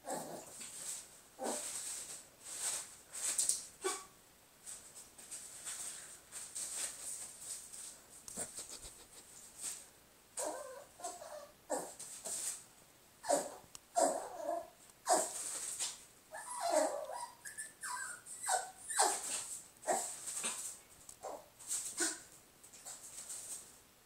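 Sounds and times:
small dog barking: 3.8s - 4.2s.

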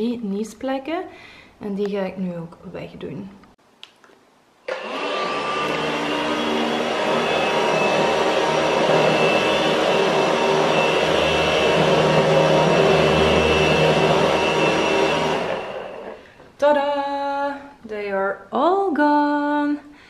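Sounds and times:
vacuum cleaner running: 4.7s - 16.4s.

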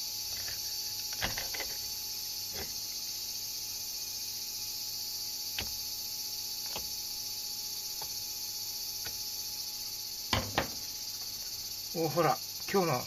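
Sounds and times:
high-pitched hiss: 0.0s - 13.0s
knife knocking on cutting board: 10.4s - 10.8s.

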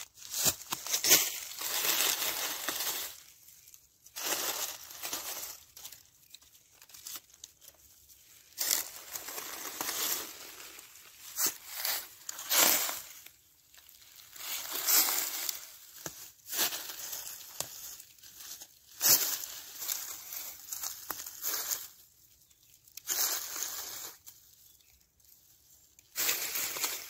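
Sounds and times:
dry leaves crackling and rustling: 0.0s - 27.0s.

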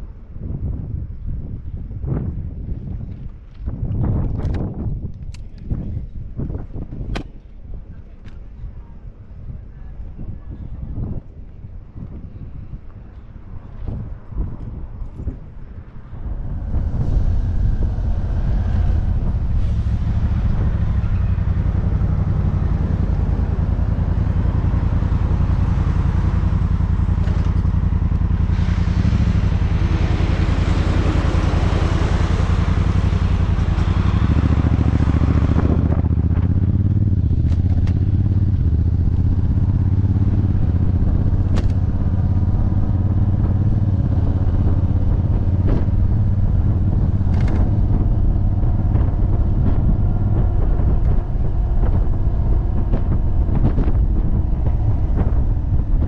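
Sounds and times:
motorcycle engine running: 15.2s - 56.0s.

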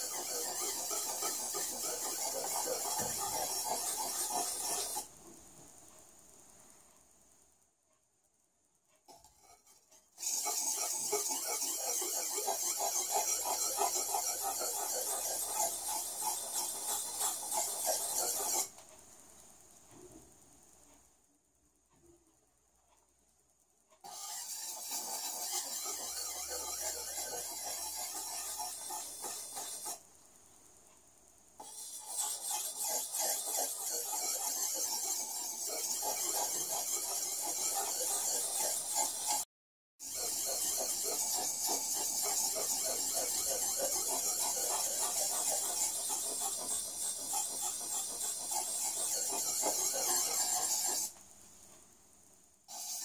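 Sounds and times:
cleaver scraping on sharpening stone: 0.0s - 5.0s, 9.1s - 18.7s, 24.0s - 30.0s, 31.6s - 39.4s, 40.0s - 51.1s, 52.7s - 53.0s.

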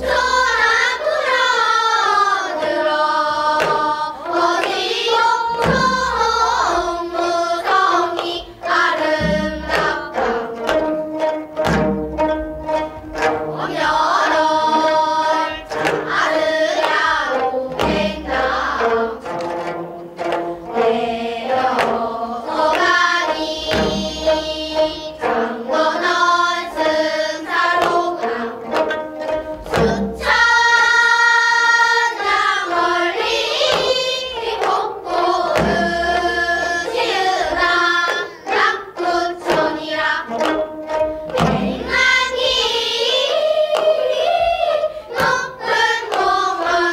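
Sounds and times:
children singing: 0.0s - 46.9s
barrel drum strokes: 32.0s - 43.2s.

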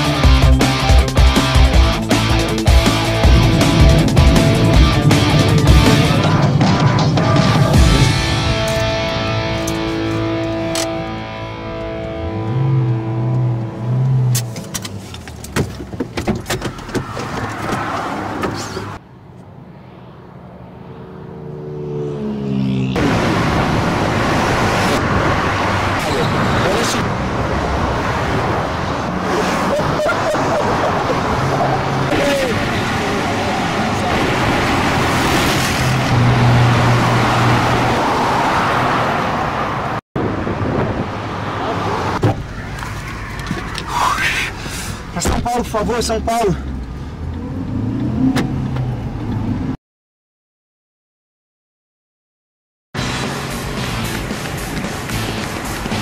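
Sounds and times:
highway traffic noise: 0.0s - 49.8s, 53.0s - 56.0s
engine note rising: 0.8s - 14.6s, 19.2s - 29.8s, 31.1s - 39.1s
cars passing at speed: 1.4s - 16.1s, 16.8s - 49.8s, 53.0s - 56.0s
clicks and knocks inside car: 15.2s - 18.7s.

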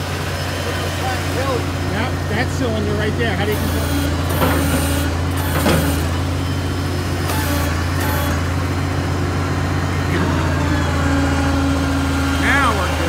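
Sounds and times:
hydraulic hum: 0.0s - 13.0s
truck engine running: 0.0s - 13.0s.

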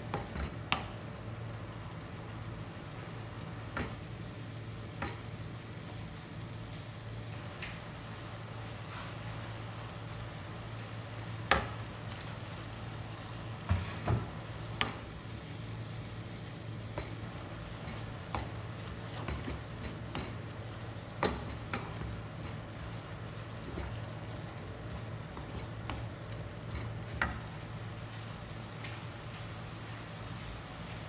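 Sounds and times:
frying sizzle in a wok: 0.0s - 31.0s
spatula knocking against pan: 21.1s - 23.0s.

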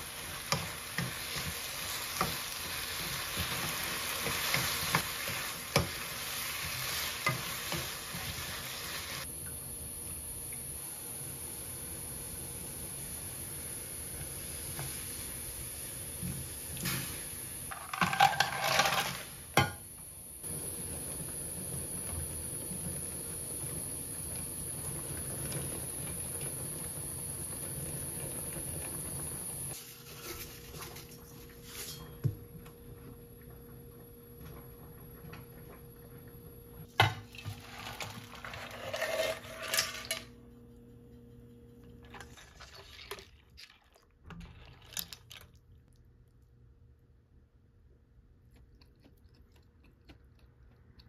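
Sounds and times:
dishes and utensils clinking: 17.7s - 19.8s.

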